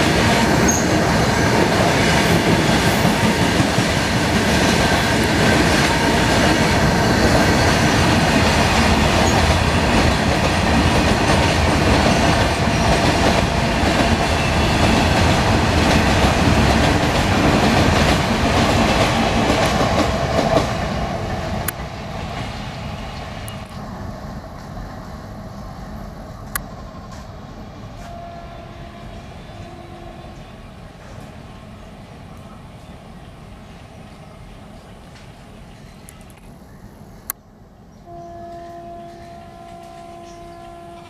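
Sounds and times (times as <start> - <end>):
train wheels rumbling and clacking: 0.0 - 28.2.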